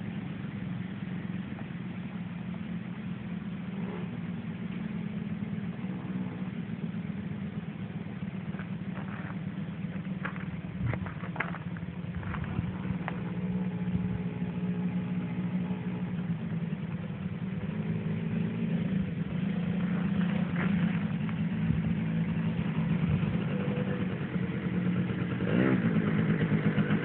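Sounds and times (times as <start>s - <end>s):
small quad engine running: 0.0s - 27.0s.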